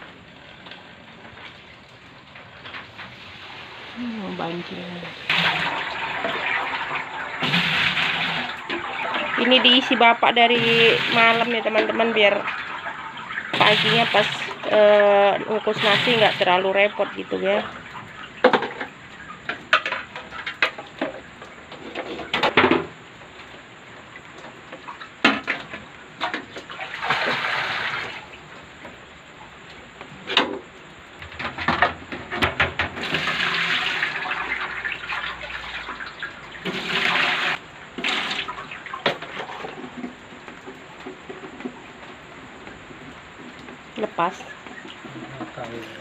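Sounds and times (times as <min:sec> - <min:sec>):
water pouring into metal pot: 0:01.6 - 0:21.0, 0:26.6 - 0:28.4, 0:32.8 - 0:39.9.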